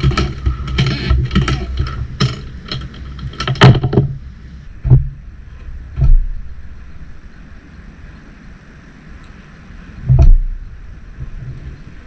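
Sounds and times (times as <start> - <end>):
thumps: 0.0 - 6.5, 10.1 - 10.6
stepper pedals clunking: 0.0 - 6.6.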